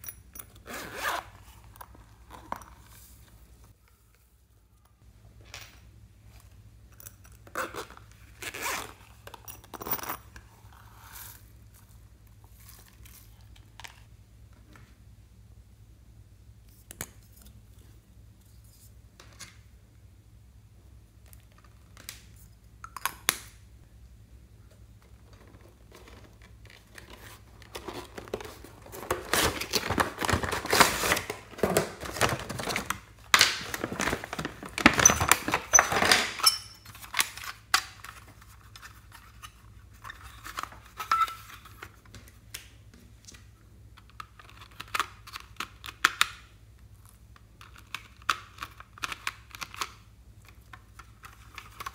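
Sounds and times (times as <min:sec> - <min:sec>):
plastic rattling and crinkling: 0:25.0 - 0:42.4.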